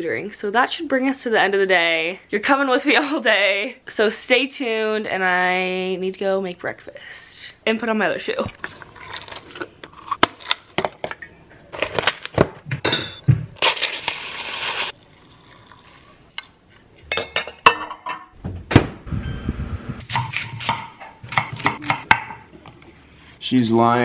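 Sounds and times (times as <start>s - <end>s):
ceramic and glass clinking on countertop: 17.1s - 18.3s.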